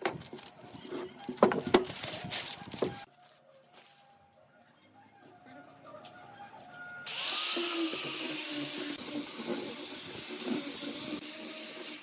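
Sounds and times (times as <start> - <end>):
angle grinder sanding wood: 7.1 - 12.0.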